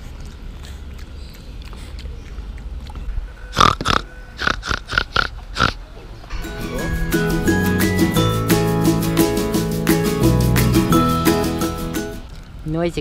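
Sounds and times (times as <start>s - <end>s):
pig grunting: 3.4s - 5.9s.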